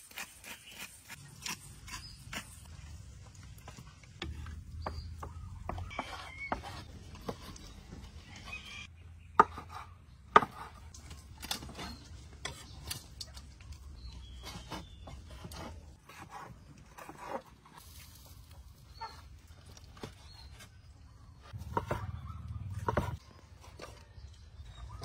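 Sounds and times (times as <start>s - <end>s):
knife chopping on wooden board: 9.4s - 10.8s, 21.6s - 23.2s.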